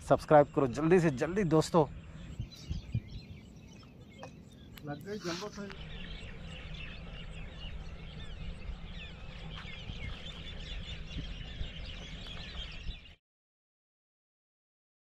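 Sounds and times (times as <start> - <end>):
small birds chirping: 0.0 - 13.2
steady low rumble: 1.3 - 13.0.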